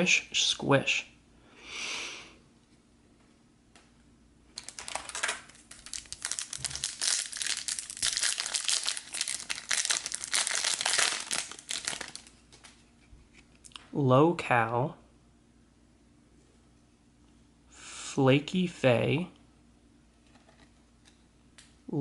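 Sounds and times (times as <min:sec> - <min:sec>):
foil wrapper tearing and crinkling: 0:04.6 - 0:12.4.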